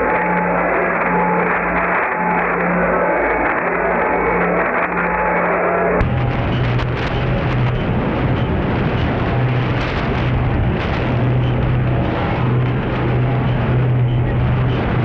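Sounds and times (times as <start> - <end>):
dense rushing radio noise: 0.0 - 15.0
low steady hum: 6.0 - 15.0.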